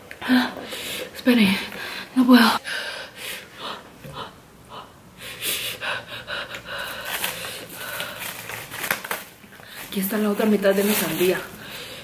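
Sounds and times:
person panting and gasping: 0:01.9 - 0:08.4.

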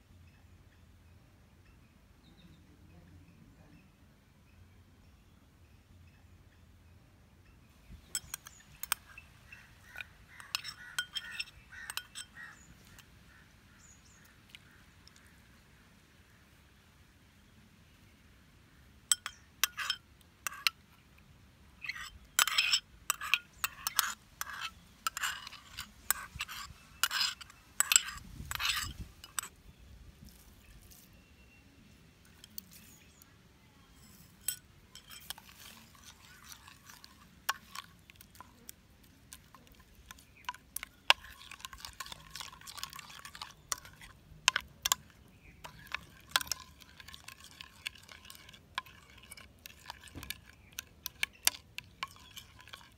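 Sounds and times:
stirring liquid: 0:07.9 - 0:15.5, 0:19.1 - 0:21.0, 0:21.8 - 0:31.2, 0:32.2 - 0:52.9
utensils clinking against dishes: 0:08.0 - 0:13.0, 0:19.1 - 0:20.7, 0:21.8 - 0:29.5, 0:33.9 - 0:38.5, 0:39.3 - 0:52.9.

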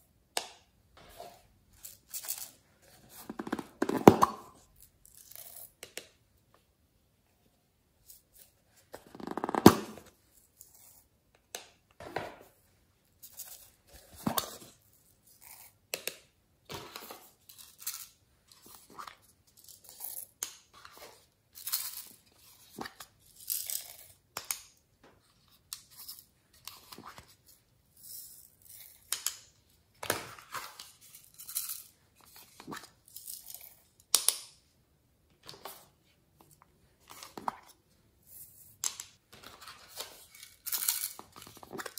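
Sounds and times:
plastic cases clicking and rustling: 0:03.2 - 0:04.5, 0:09.0 - 0:10.1.

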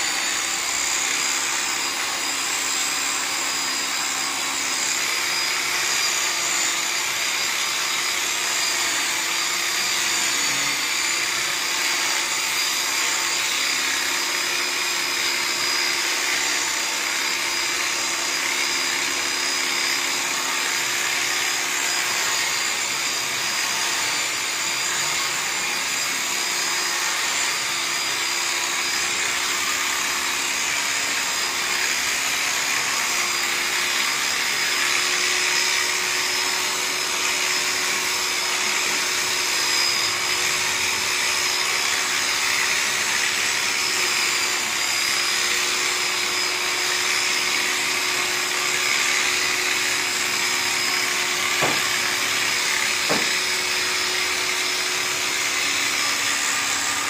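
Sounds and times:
electric clipper whining: 0:00.0 - 0:57.0.

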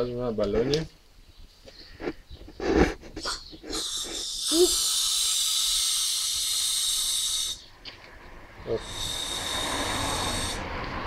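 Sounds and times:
gas hissing into balloon: 0:03.2 - 0:07.6, 0:08.7 - 0:10.8.

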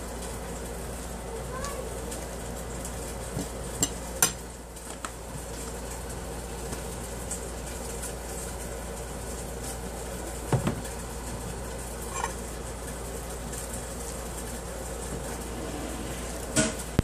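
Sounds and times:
low room hum: 0:00.0 - 0:17.0
fork clinking on china plate: 0:12.1 - 0:12.4.

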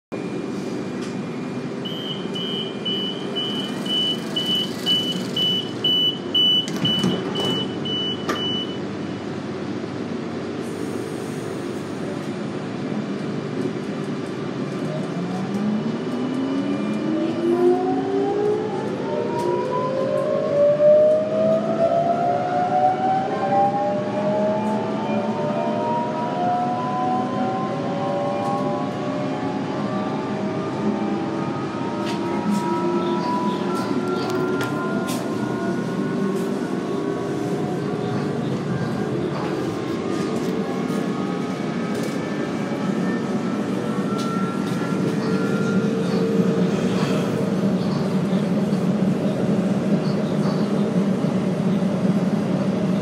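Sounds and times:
steady train hum: 0:00.1 - 0:53.0
door warning beep: 0:01.8 - 0:08.8
traction motors whining: 0:03.3 - 0:05.9
train doors knocking shut: 0:06.6 - 0:08.5.

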